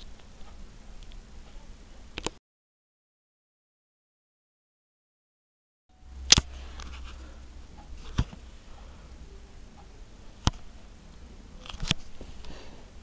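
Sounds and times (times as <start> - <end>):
low room hum: 0.0 - 2.4, 5.9 - 13.0
sharp clicks: 6.1 - 8.9.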